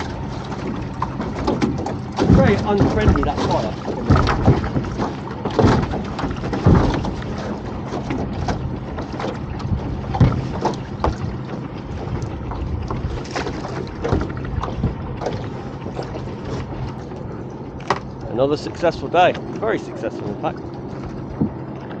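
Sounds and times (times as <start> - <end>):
outboard engine idling: 0.0 - 22.0
wind buffeting microphone: 0.0 - 22.0
rope knocking on boat side: 0.6 - 11.6, 12.9 - 15.4.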